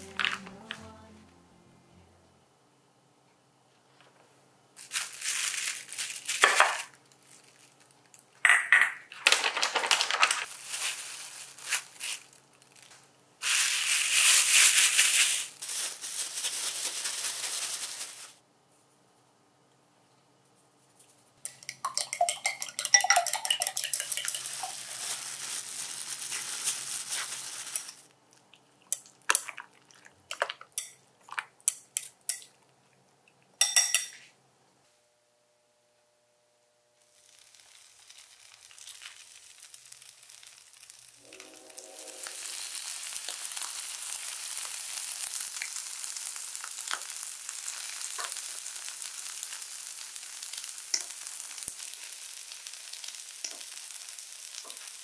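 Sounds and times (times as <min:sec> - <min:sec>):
plastic pouch rustling: 0:04.8 - 0:08.2, 0:09.1 - 0:18.4, 0:24.5 - 0:28.1
utensil beating eggs in glass bowl: 0:21.5 - 0:24.8.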